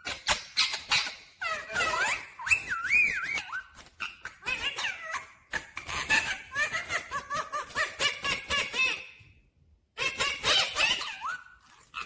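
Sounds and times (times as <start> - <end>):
parakeet chirping: 0.0 - 5.2.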